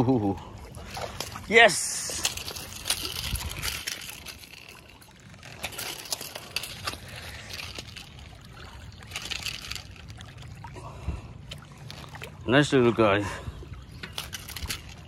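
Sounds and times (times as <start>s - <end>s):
river water lapping on rocks: 0.2s - 15.0s.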